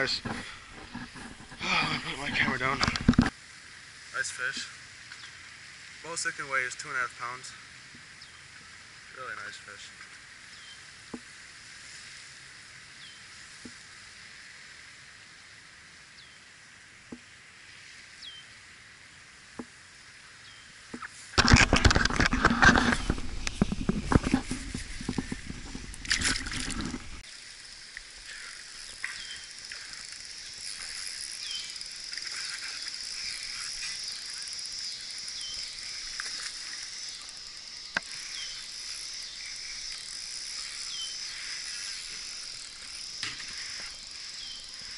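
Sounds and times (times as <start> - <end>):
insects chirring: 0.0 - 44.9
water splashing with handling: 21.4 - 27.2.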